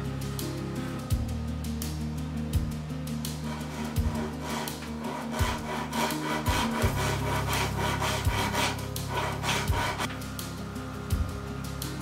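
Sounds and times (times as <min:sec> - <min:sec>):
handsaw cutting wood: 0:03.4 - 0:10.1.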